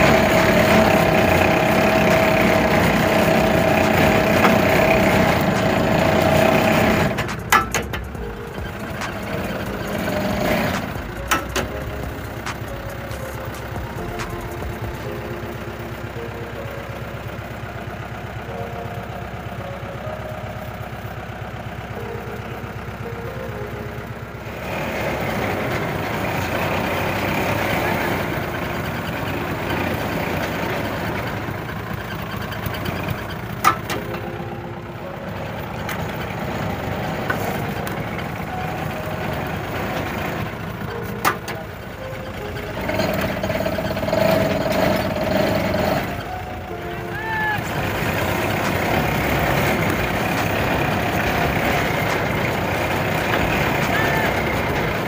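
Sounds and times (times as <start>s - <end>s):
winch engine running: 0.0s - 55.0s
sharp metal clanks: 6.9s - 14.7s.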